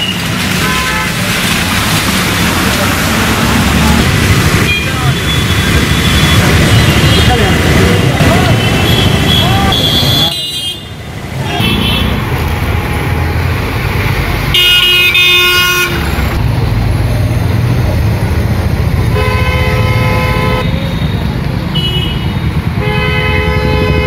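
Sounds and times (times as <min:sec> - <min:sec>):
vehicle horns honking: 0:00.0 - 0:01.2, 0:08.3 - 0:12.2, 0:14.5 - 0:16.1, 0:19.1 - 0:21.1, 0:21.7 - 0:24.0
motorcycle engines rumbling: 0:00.0 - 0:24.0.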